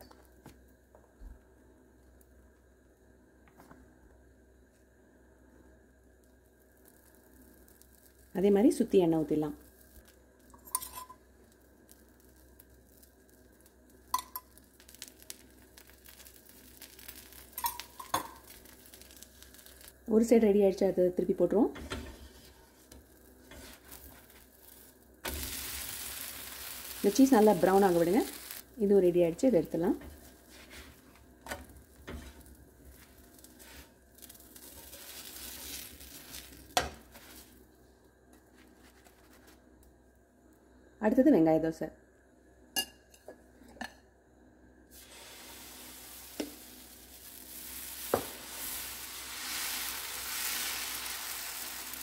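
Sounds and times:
oil sizzling on hot iron: 4.6 - 40.2, 44.8 - 52.0
metal spoon clinks: 10.6 - 11.2
spatula scraping on iron griddle: 21.8 - 28.6, 30.0 - 37.5, 45.0 - 51.9.

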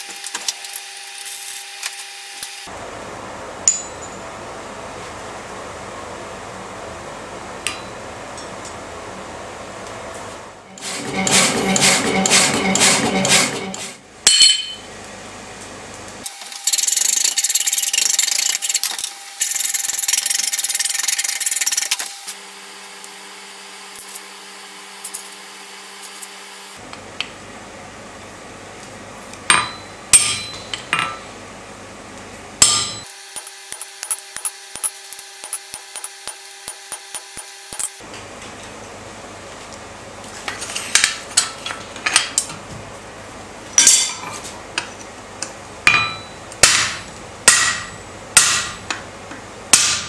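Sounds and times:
bandsaw cutting steel: 10.6 - 14.0, 32.6 - 38.0.

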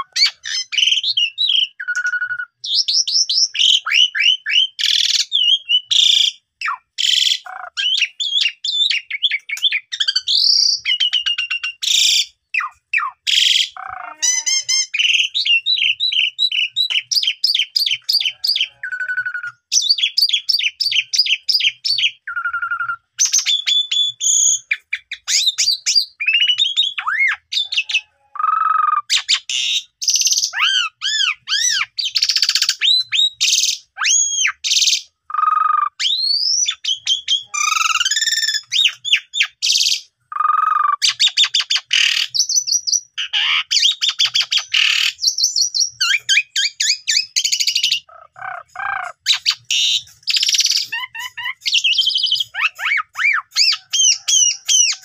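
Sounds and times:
starling singing: 0.0 - 55.0.

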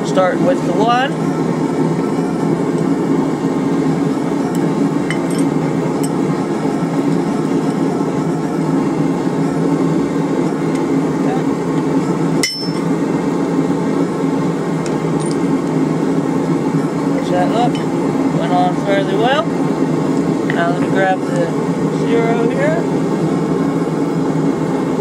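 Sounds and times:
hammer striking steel stamp: 12.4 - 12.9.

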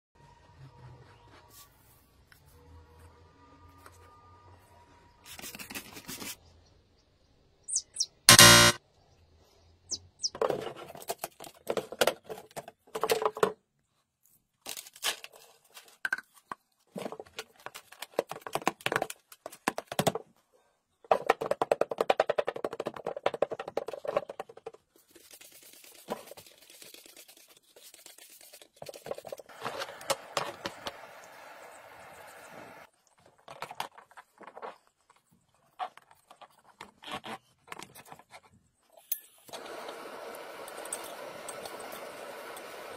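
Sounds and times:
plastic scoop scraping soil: 29.4 - 30.7.

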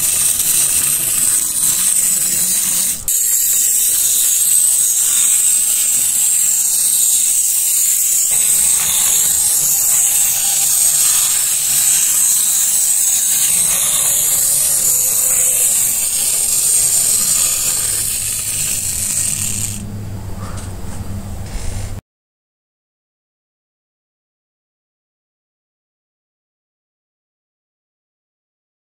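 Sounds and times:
clockwork motor whirring: 0.0 - 19.9
toy train wheels rattling on track: 0.0 - 19.9.

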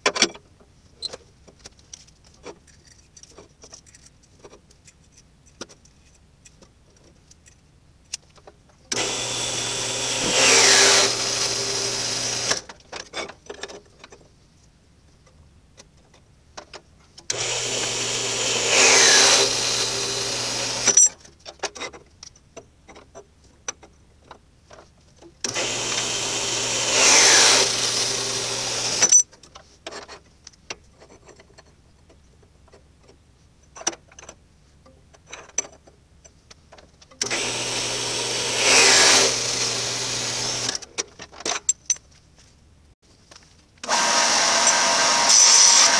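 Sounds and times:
metal saw cutting steel tube: 8.9 - 12.7, 17.3 - 21.1, 25.5 - 29.2, 37.2 - 40.8, 43.8 - 45.9.

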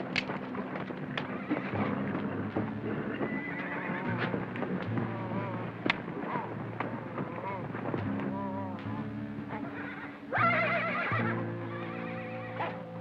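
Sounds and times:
animal wavering calls: 5.0 - 13.0.

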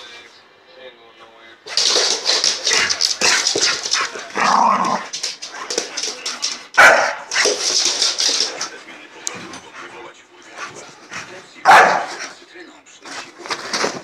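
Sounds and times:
scuffling and clicks: 1.7 - 9.6, 13.1 - 14.0
dog barking and yipping: 6.8 - 7.4, 11.7 - 12.2.

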